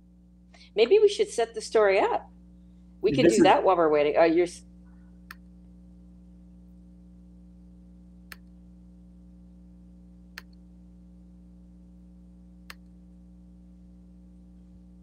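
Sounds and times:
low electrical hum: 0.0s - 15.0s
computer mouse clicks: 8.3s - 8.5s.

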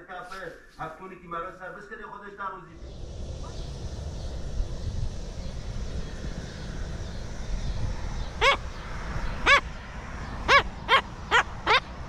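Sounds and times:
low rumble: 2.4s - 11.3s.

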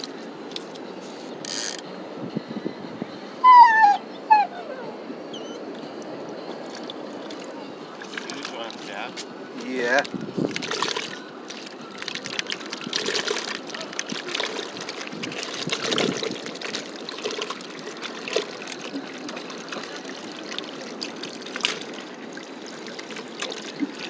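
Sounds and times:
fish splashing in bucket: 10.5s - 24.0s.

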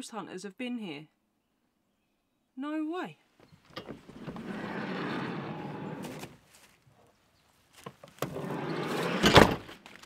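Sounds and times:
sliding door running on track: 4.1s - 6.2s, 8.3s - 9.6s
door slamming: 8.3s - 9.7s.

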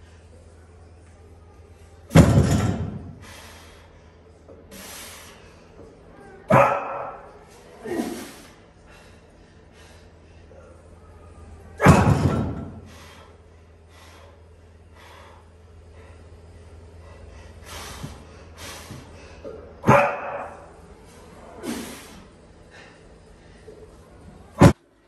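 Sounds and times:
barbell plates thudding: 2.1s - 3.2s, 11.8s - 13.0s
heavy breathing: 3.1s - 5.8s, 7.8s - 11.1s, 12.8s - 19.8s
sharp exhales: 4.7s - 5.5s, 17.0s - 19.5s, 21.6s - 23.0s.

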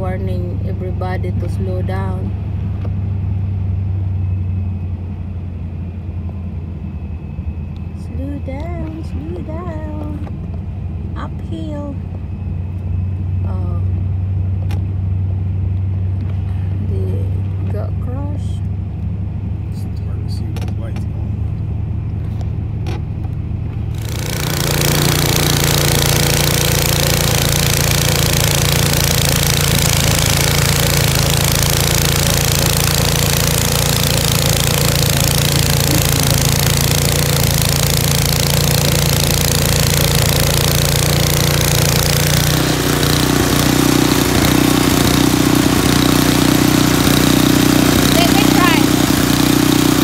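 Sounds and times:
snow blower engine running: 23.7s - 50.0s.

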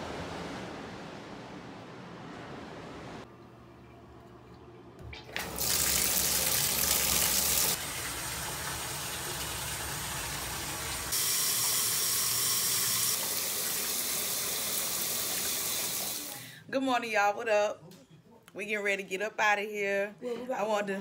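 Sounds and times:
water running from faucet into tub: 5.1s - 16.4s.

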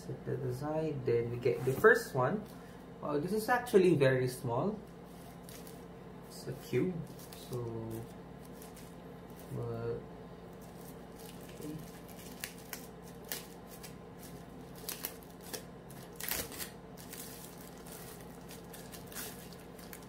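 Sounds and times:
plastic bag crinkling: 10.6s - 20.0s.

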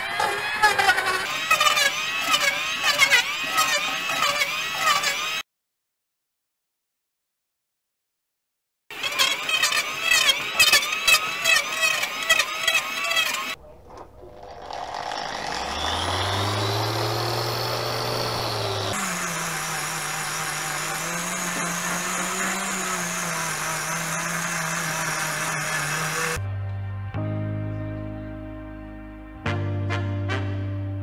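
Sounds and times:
angle grinder sanding wood: 0.0s - 5.4s, 8.9s - 26.4s.

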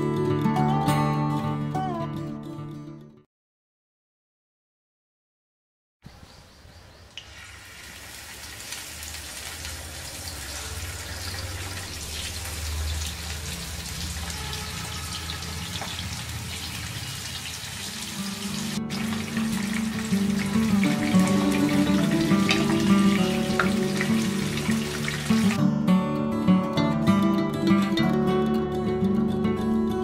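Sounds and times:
fish sizzling in oil: 7.2s - 25.6s
background music: 18.2s - 30.0s.

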